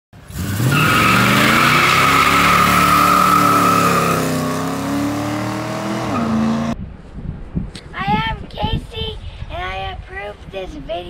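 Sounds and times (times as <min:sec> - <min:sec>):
car engine revving: 0:00.2 - 0:06.8
tyres squealing: 0:00.6 - 0:04.9.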